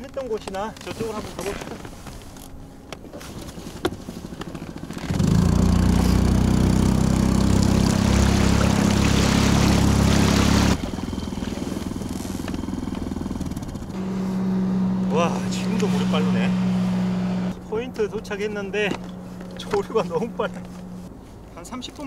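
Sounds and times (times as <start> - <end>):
small boat motor running: 1.9 - 21.5
rush of wind and water: 5.0 - 12.5.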